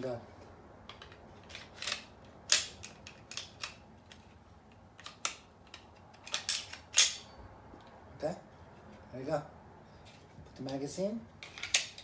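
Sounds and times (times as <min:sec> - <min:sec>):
pistol slide clicks and scrapes: 0:00.9 - 0:07.3, 0:11.4 - 0:12.0.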